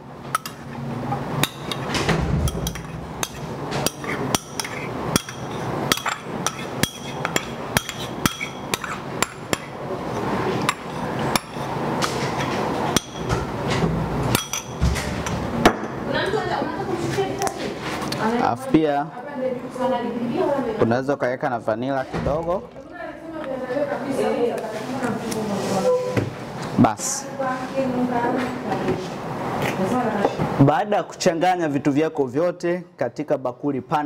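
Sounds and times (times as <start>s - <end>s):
spoon clinking on ceramic bowl: 2.5s - 9.7s, 14.3s - 14.8s.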